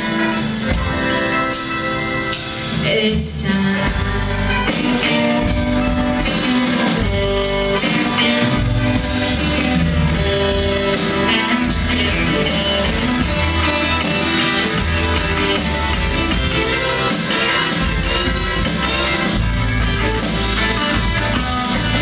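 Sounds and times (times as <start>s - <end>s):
live band playing: 0.0s - 22.0s
steady drum beat: 0.0s - 22.0s.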